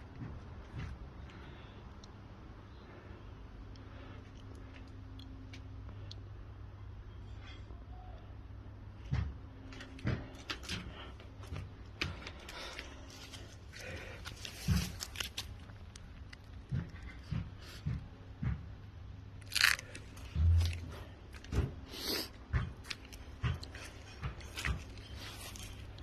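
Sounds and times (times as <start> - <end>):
footsteps thumping: 20.2 - 21.8.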